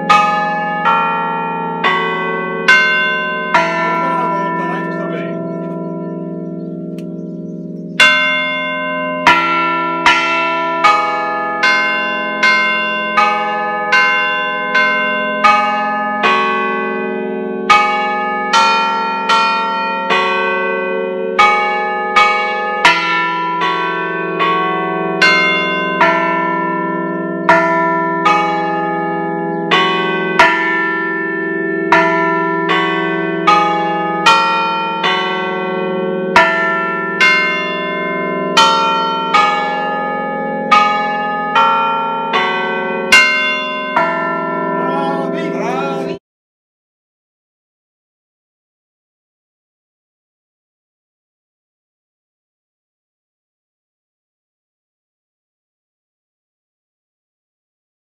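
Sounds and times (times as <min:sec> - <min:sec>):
church bells ringing: 0:00.0 - 0:46.2.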